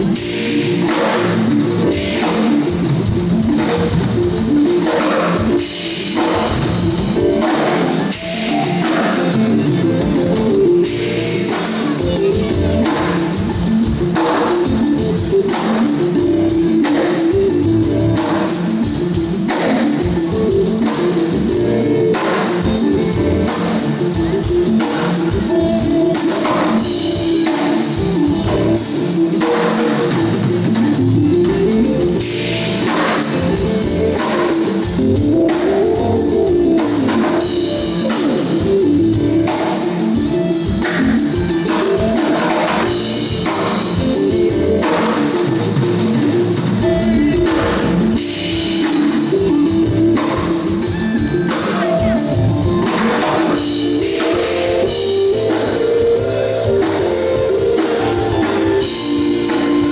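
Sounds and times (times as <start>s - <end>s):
drum kit playing: 0.0s - 59.9s
rock backing track with guitar: 0.0s - 59.9s.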